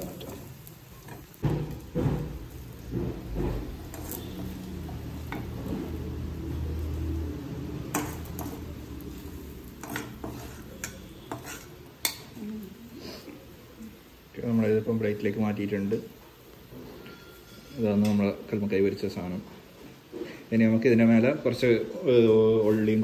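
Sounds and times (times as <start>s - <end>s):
steel spoon scraping and clinking: 2.0s - 6.0s, 7.8s - 12.4s, 16.9s - 18.3s.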